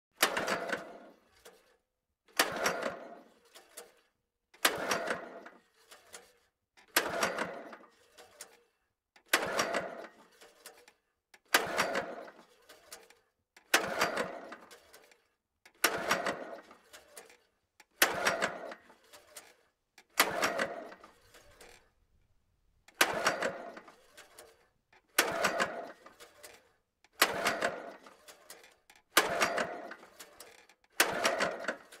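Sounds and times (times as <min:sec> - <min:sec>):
lawn mower engine cranking: 0:09.3 - 0:10.9, 0:11.5 - 0:15.2, 0:15.8 - 0:32.0.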